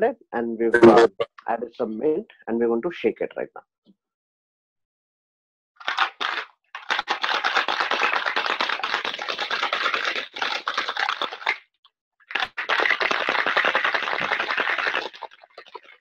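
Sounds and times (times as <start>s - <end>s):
ice rattling in cocktail shaker: 5.8s - 11.6s, 12.2s - 16.0s.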